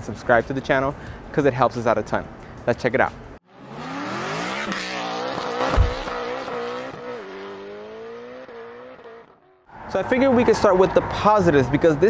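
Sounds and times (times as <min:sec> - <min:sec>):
race car engine revving: 0:03.5 - 0:09.6
low thump: 0:05.6 - 0:06.2.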